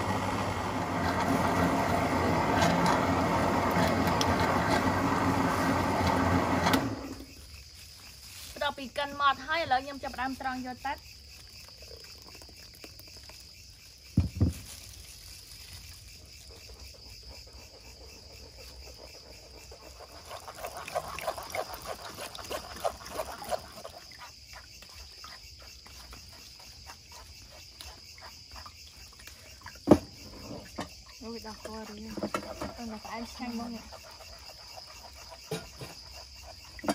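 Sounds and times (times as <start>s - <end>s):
juice pouring through strainer: 0.0s - 7.3s, 11.2s - 15.2s, 20.1s - 24.1s
crickets chirping: 0.0s - 36.9s.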